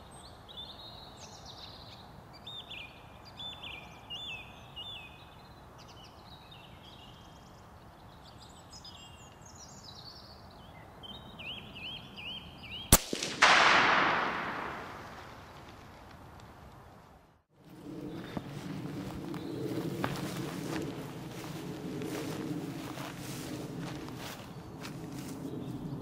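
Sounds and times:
birds whistling: 8.3 - 13.0
rifle shot: 12.9 - 15.5.

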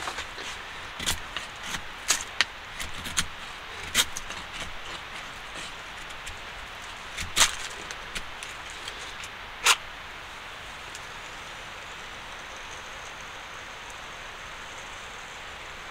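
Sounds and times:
knife scraping wood: 0.0 - 9.8
steady hiss: 0.0 - 15.9.

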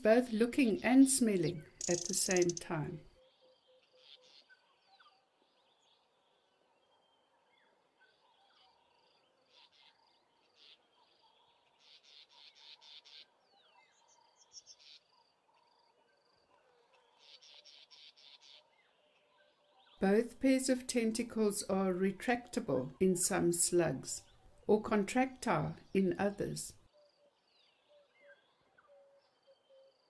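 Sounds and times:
small bird chirps: 1.2 - 5.2, 17.0 - 18.7
faint insect trilling: 1.5 - 3.0
rapid high clicking pulses: 1.7 - 2.7.

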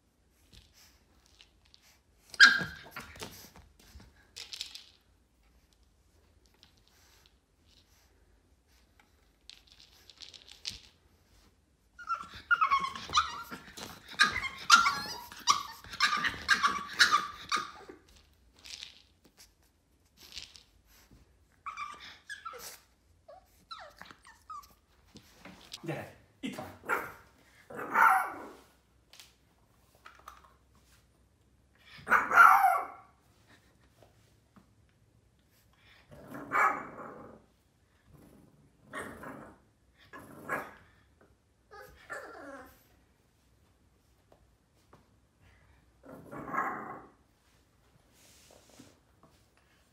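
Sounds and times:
puppy whining: 2.3 - 3.4, 11.9 - 18.3, 21.5 - 25.0, 41.6 - 42.9
puppy growling and barking: 12.0 - 18.0, 26.8 - 28.7, 32.0 - 33.1, 36.1 - 37.5, 38.2 - 40.9, 46.0 - 47.2
puppy barking: 26.8 - 27.2, 27.8 - 28.5, 32.1 - 33.1.

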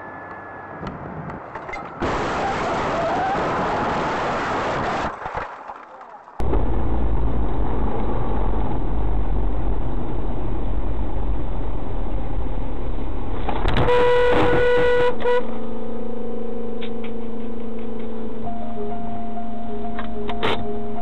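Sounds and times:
road and engine rumble: 0.0 - 21.0
car horn: 13.7 - 16.0.

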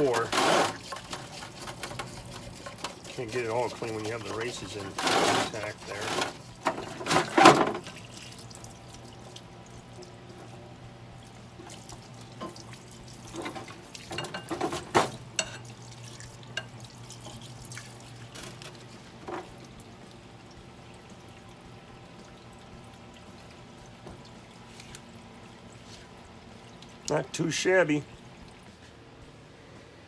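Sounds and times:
solvent splashing over metal: 0.0 - 9.2
low pump hum: 0.0 - 30.0.

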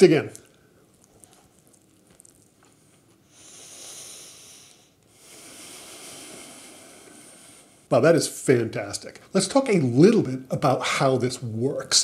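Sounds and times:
quiet chewing: 0.2 - 3.3
breath out through nose: 3.3 - 7.9.

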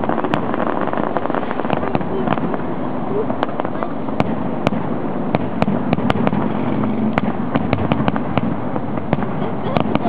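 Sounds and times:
fireworks bursting: 0.0 - 10.0.

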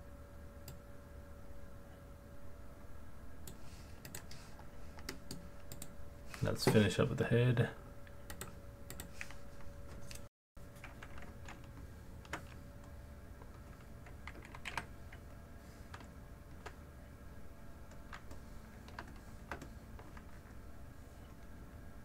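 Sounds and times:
faint steady hum: 0.0 - 22.0
keyboard and mouse clicks: 3.5 - 4.4, 5.0 - 5.9, 8.3 - 15.2, 17.9 - 20.4.

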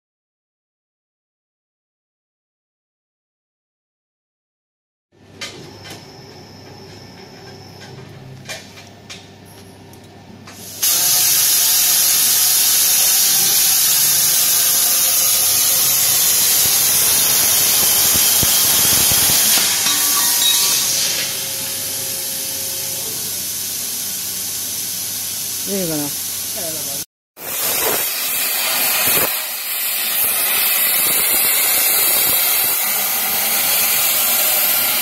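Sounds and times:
plasma torch arc hissing: 10.6 - 35.0.

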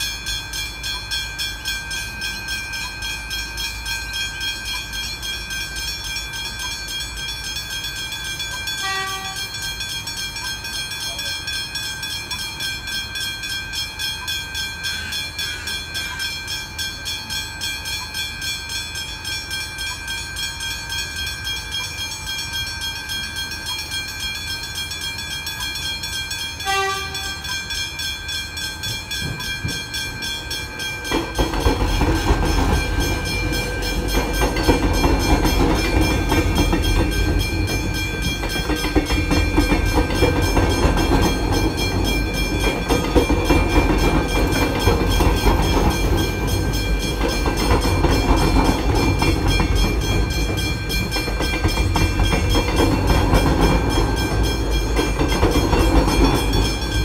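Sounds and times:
electric train rumbling: 0.0 - 57.0
level crossing bells ringing: 0.0 - 57.0
train horn blasts: 8.8 - 9.6, 26.6 - 27.5.

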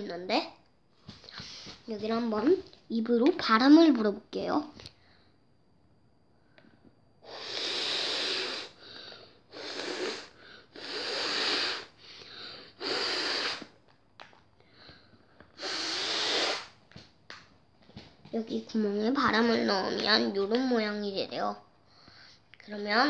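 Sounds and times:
soft breaths: 1.0 - 1.9, 6.4 - 13.8, 14.6 - 16.8, 21.8 - 22.6
strong puffs of breath: 7.2 - 13.7, 15.6 - 16.8.

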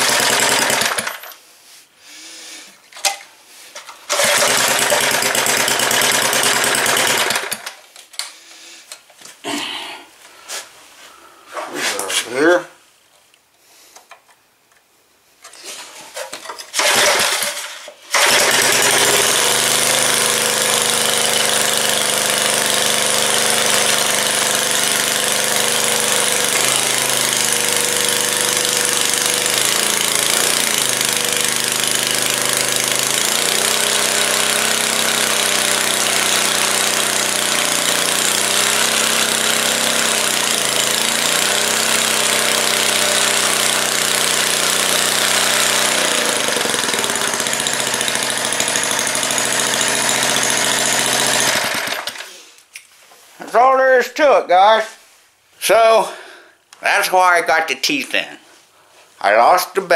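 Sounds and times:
small engine starting and running: 0.0 - 1.4, 3.8 - 7.8, 16.6 - 52.6.

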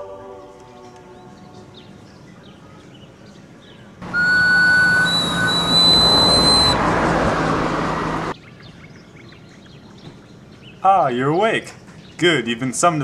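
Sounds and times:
shrill whistle blast: 4.0 - 7.6
hissing rush: 4.0 - 8.3.

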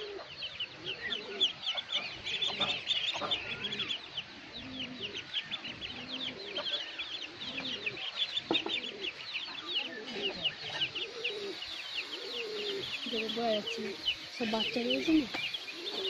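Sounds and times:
ducklings peeping: 0.0 - 16.0
hen clucking: 0.0 - 16.0.

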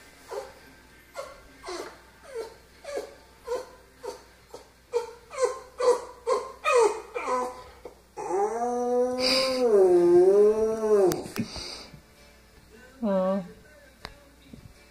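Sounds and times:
dog whining: 0.3 - 11.4.

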